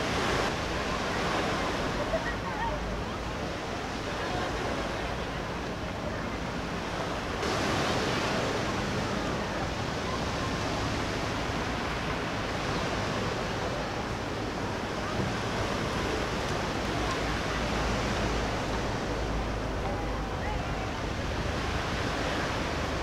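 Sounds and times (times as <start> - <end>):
sea surf: 0.0 - 23.0
wind: 0.0 - 23.0.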